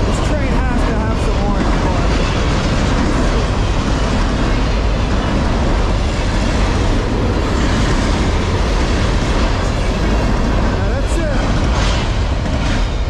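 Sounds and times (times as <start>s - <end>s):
freight train wheels rolling on rails: 0.0s - 13.0s.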